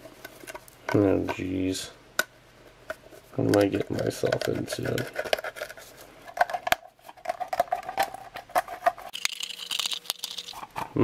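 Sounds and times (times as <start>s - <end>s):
can opener cutting tin can: 9.1s - 10.9s.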